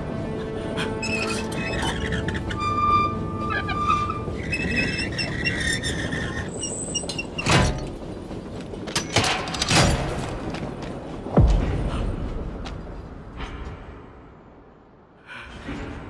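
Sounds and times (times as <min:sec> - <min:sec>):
switch rail metallic squeal: 0:01.0 - 0:07.8.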